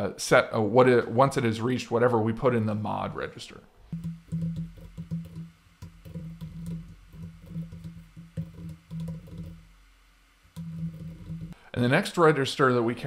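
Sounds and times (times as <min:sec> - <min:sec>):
keyboard typing: 0:03.9 - 0:09.6, 0:10.6 - 0:11.6.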